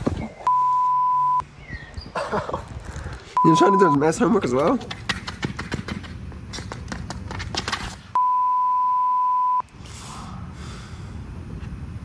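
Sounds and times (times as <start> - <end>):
censor bleep: 0.5 - 1.4, 3.4 - 4.0, 8.2 - 9.6
footsteps slapping on pavement: 4.5 - 8.2.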